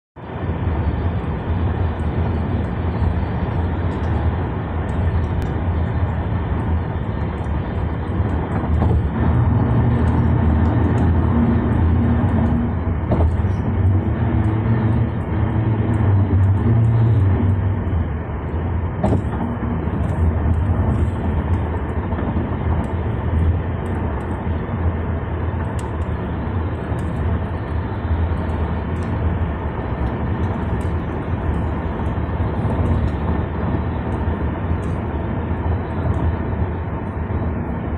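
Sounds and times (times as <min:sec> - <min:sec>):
low engine hum: 0:00.2 - 0:37.9
tyre and road noise in car: 0:00.2 - 0:37.9.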